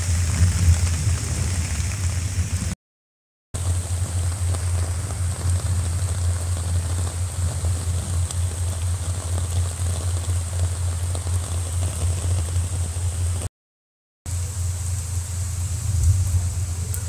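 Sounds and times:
low rumble: 0:00.0 - 0:02.8, 0:03.6 - 0:13.5, 0:14.4 - 0:17.0
rain falling into a puddle: 0:00.0 - 0:02.8, 0:03.6 - 0:13.5.

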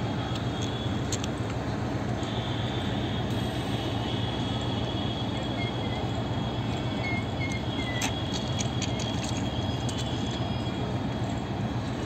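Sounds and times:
train coaches rumbling past: 0:00.0 - 0:12.0
train wheel clicks and clatter: 0:07.4 - 0:10.4.

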